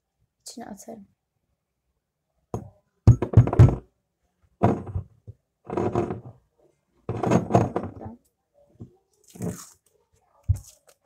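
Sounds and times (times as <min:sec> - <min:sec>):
glass bottle knocking on table: 0:02.6 - 0:03.8.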